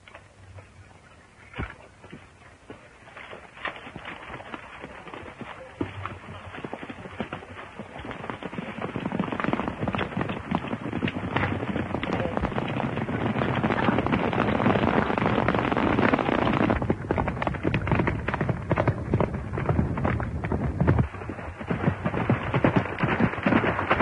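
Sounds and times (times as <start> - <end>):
horses galloping hoofbeats: 0.0 - 24.0.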